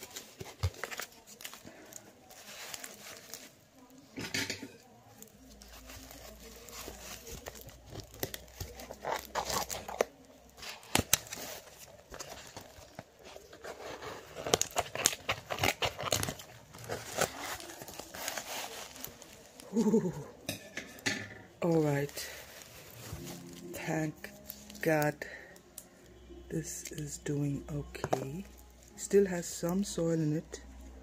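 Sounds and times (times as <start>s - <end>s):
paper filler rustling and crinkling: 0.0s - 4.2s, 5.0s - 20.1s, 21.6s - 25.4s.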